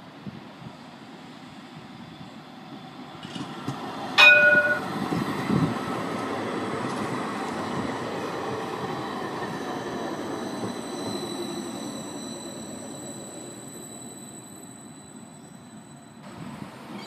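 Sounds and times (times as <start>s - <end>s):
tram wheels rumbling on rail: 0.0s - 17.0s
short ringing signal: 4.2s - 4.9s.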